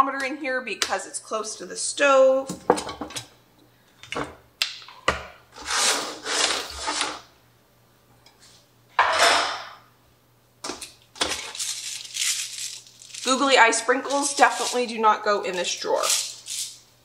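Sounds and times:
items scraping in drawer: 0:05.6 - 0:07.2.

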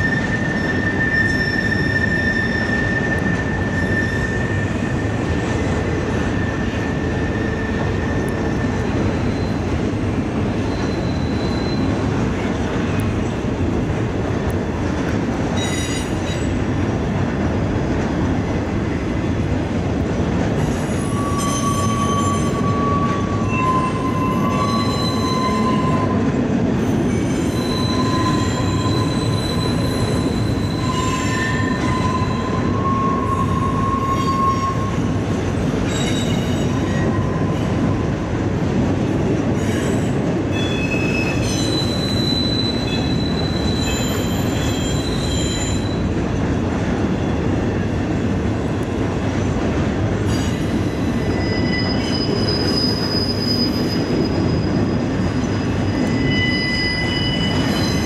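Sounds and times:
high wheel squeals: 0:00.0 - 0:09.8, 0:10.6 - 0:12.1, 0:20.7 - 0:26.3, 0:26.9 - 0:35.2, 0:35.8 - 0:38.0, 0:39.6 - 0:46.2, 0:50.3 - 0:58.0
freight train rumbling over bridge: 0:00.0 - 0:58.0.

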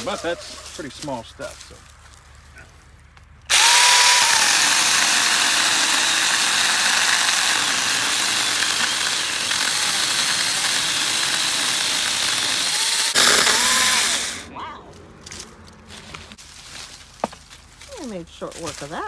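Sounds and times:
electric chainsaw cutting: 0:03.5 - 0:14.5.

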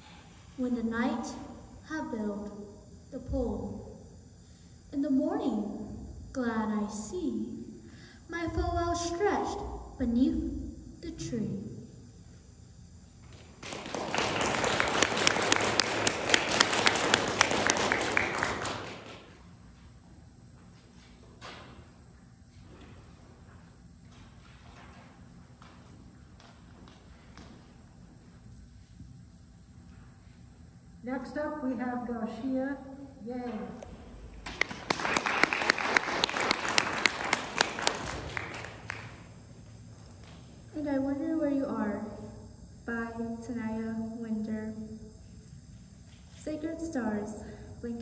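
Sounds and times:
close person clapping: 0:13.3 - 0:19.4, 0:34.4 - 0:39.3
audience applauding: 0:13.4 - 0:19.4, 0:34.4 - 0:39.2.

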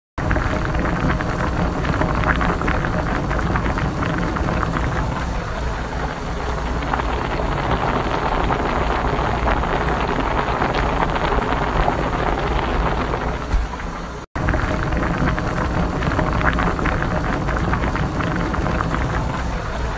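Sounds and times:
water boiling in kettle: 0:00.2 - 0:19.9.

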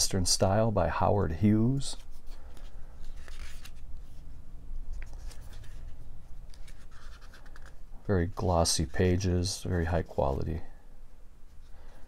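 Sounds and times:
paper pages rustling: 0:01.7 - 0:10.5.

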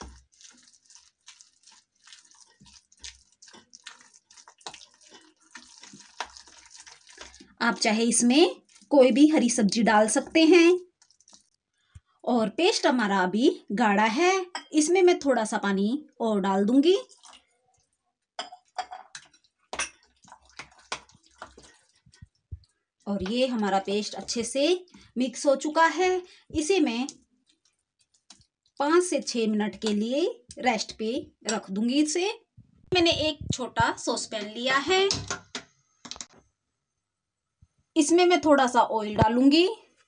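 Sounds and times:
hand squishing wet batter: 0:00.0 - 0:12.2, 0:17.0 - 0:18.2, 0:19.2 - 0:25.1, 0:26.6 - 0:30.9.

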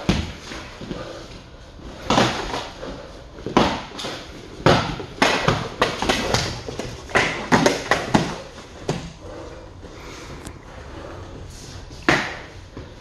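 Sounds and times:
strikes landing on padded guards: 0:03.5 - 0:09.0.

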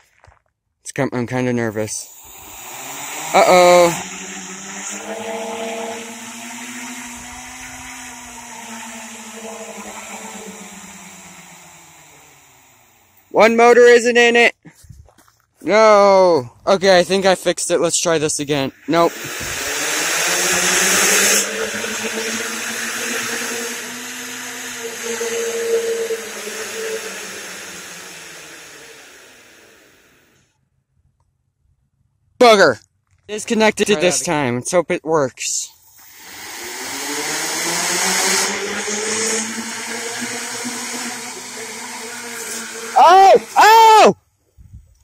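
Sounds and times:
loud rushing hiss: 0:01.8 - 0:13.6, 0:16.9 - 0:30.4, 0:36.0 - 0:44.1
drone motors and propellers whining: 0:01.8 - 0:14.0, 0:17.2 - 0:30.4, 0:35.8 - 0:44.2.

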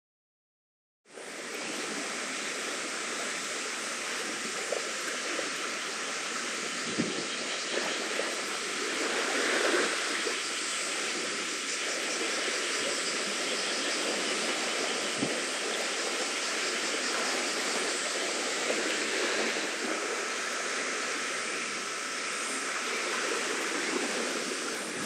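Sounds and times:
seashore rushing noise: 0:05.1 - 0:25.0.

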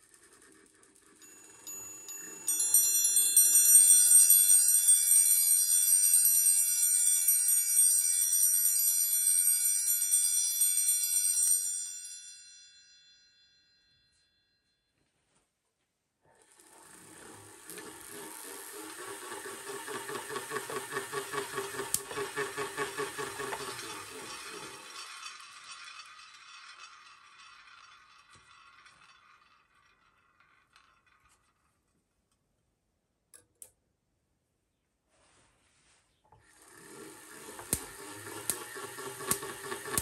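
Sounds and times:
hand-cranked machine rattling whir: 0:00.0 - 0:11.6, 0:16.2 - 0:31.8, 0:36.3 - 0:40.0.

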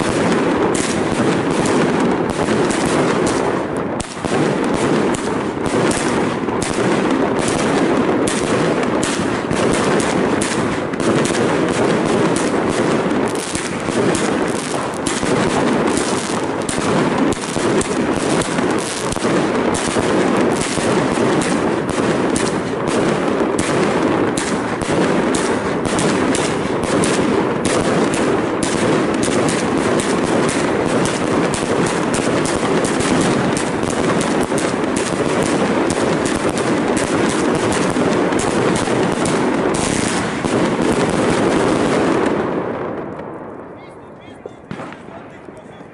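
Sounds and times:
firework bursts: 0:00.0 - 0:45.9
fireworks cake firing rapidly: 0:00.0 - 0:45.9.

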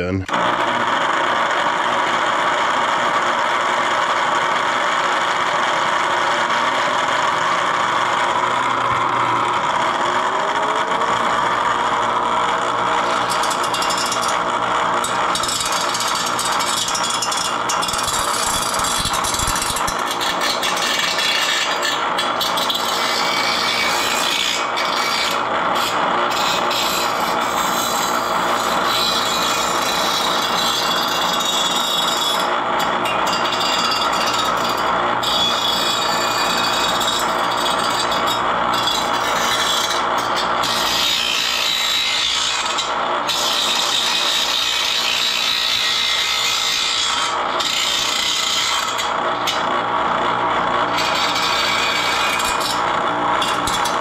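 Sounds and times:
bench grinder grinding steel: 0:00.0 - 0:54.0.

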